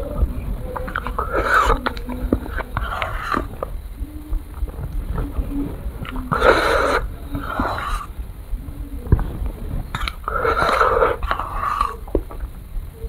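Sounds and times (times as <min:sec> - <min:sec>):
short breathy bursts: 0:00.0 - 0:13.0
wet mouth eating sounds: 0:00.1 - 0:03.8, 0:09.1 - 0:12.5.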